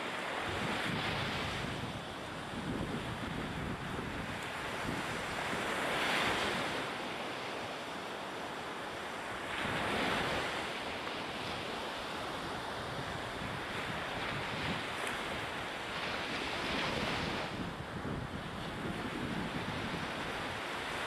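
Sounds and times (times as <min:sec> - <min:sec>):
wind buffeting microphone: 0:00.4 - 0:06.8, 0:12.4 - 0:21.0.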